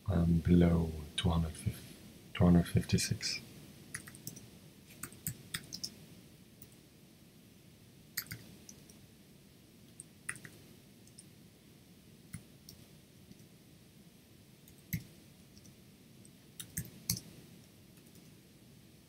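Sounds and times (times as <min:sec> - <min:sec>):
keyboard keys clicking: 0:04.0 - 0:04.4, 0:05.0 - 0:05.9, 0:08.2 - 0:08.9, 0:16.6 - 0:17.3.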